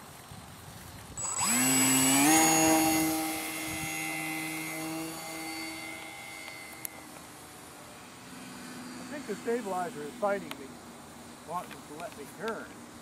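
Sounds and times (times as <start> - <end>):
electric model plane motor whine: 0.9 - 10.6.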